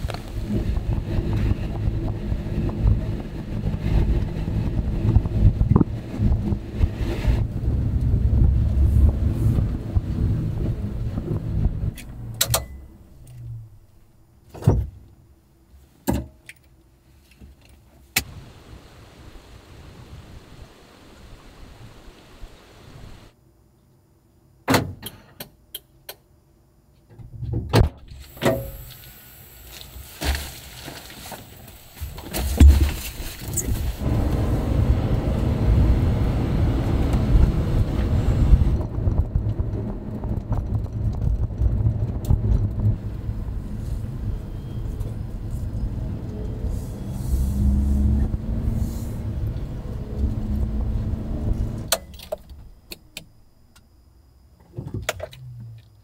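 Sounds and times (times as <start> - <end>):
small truck engine rumbling: 31.0 - 53.6.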